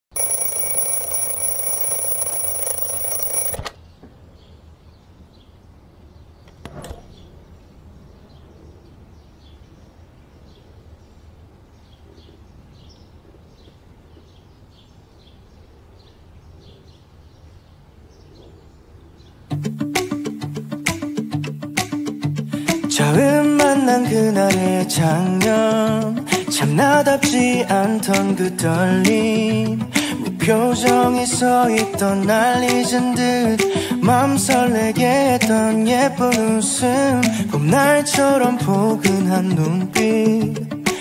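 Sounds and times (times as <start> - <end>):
alarm clock bells ringing: 0.1 - 3.6.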